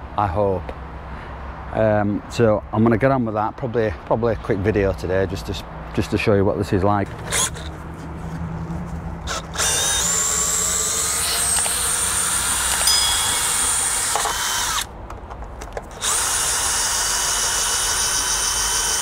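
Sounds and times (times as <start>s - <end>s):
cordless drill running: 9.3s - 14.9s, 15.9s - 19.0s.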